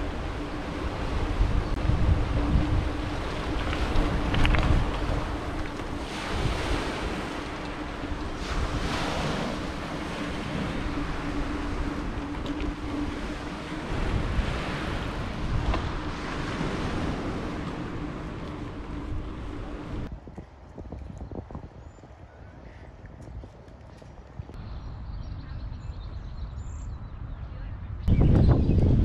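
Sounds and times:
steady low hum: 0:00.0 - 0:20.7
wind over microphone: 0:00.0 - 0:29.0
waves washing onto pebbles: 0:02.1 - 0:18.5.

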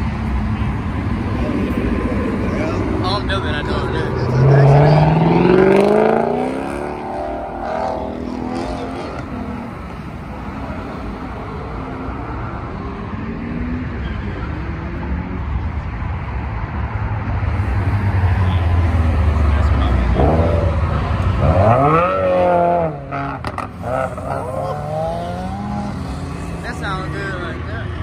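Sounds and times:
car engine revving: 0:00.4 - 0:11.3, 0:17.4 - 0:27.7.

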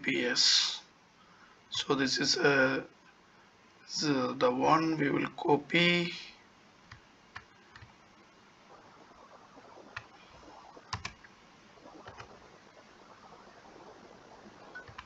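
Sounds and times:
computer mouse clicks: 0:10.9 - 0:11.3, 0:14.8 - 0:15.0
keyboard clicks: 0:10.9 - 0:11.3, 0:14.8 - 0:15.0.

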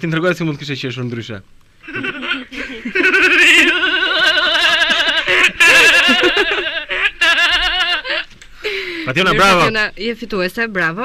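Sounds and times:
person laughing like a goat bleat: 0:01.8 - 0:08.3.

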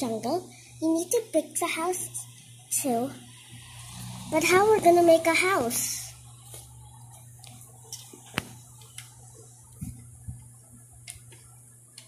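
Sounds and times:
faint low hum: 0:00.0 - 0:12.0.

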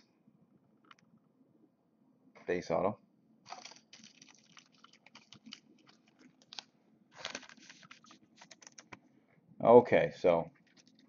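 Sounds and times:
cards rustling and clicking: 0:03.5 - 0:09.0
cards scraping: 0:05.3 - 0:08.9.

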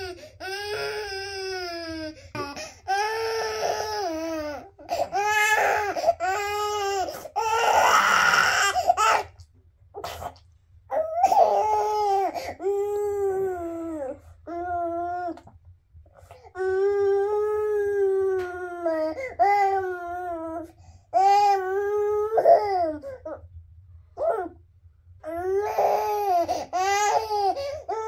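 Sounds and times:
infant crying: 0:00.0 - 0:09.4, 0:10.9 - 0:15.4, 0:16.6 - 0:23.4, 0:25.2 - 0:28.0.

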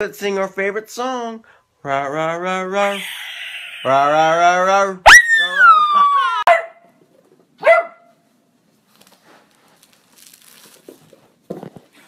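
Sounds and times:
small dog barking: 0:06.4 - 0:06.9, 0:07.6 - 0:08.1.

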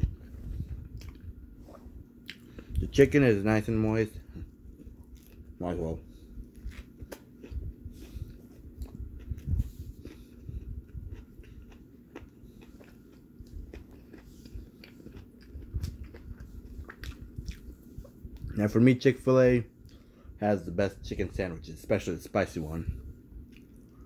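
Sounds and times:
man biting and chewing food: 0:00.0 - 0:02.9, 0:04.3 - 0:18.6, 0:23.4 - 0:24.0.

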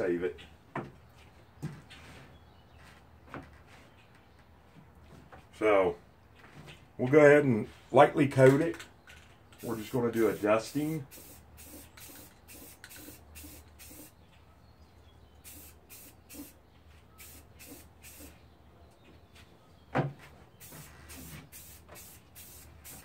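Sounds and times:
aerosol spray can hissing: 0:09.7 - 0:14.1, 0:15.4 - 0:16.6, 0:17.2 - 0:18.3, 0:20.6 - 0:23.0.

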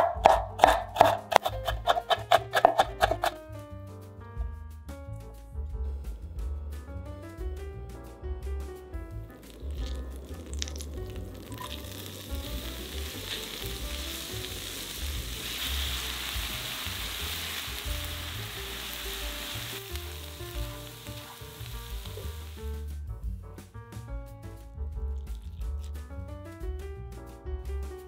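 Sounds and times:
onion sizzling in frying pan: 0:00.0 - 0:03.4, 0:09.1 - 0:22.9
soft background music: 0:00.0 - 0:28.0
spatula stirring: 0:00.2 - 0:03.4.

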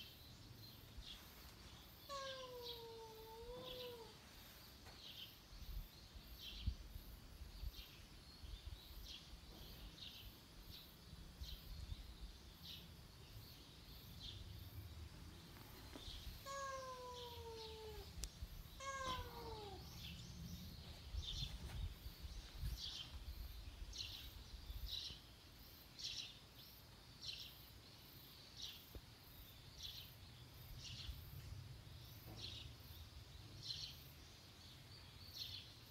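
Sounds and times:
cat meowing: 0:02.1 - 0:04.2, 0:16.4 - 0:18.2, 0:18.8 - 0:20.0.

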